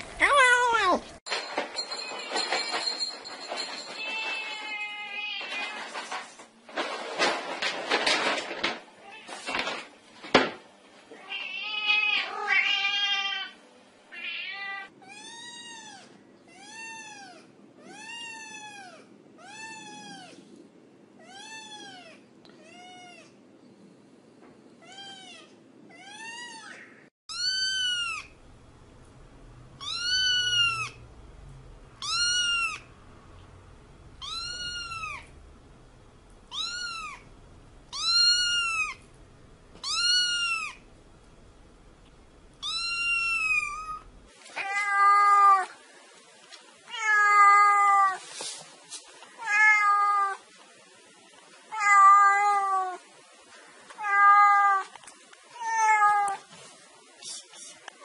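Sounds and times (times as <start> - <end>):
kittens meowing: 24.9 - 28.3, 29.8 - 31.0, 32.0 - 32.9, 34.2 - 35.3, 36.5 - 37.2, 37.9 - 39.0, 39.8 - 40.8, 42.6 - 45.7.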